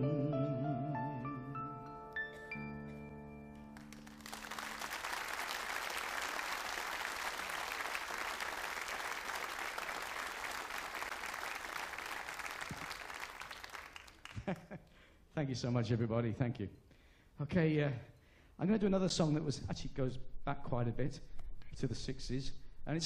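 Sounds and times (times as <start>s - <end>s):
audience applauding: 3.8s - 14.6s.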